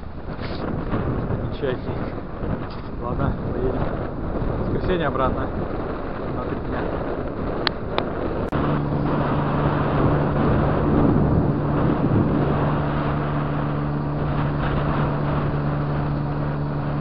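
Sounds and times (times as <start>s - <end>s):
wind and motion rumble: 0.0s - 17.0s
vehicle engine droning: 5.6s - 17.0s.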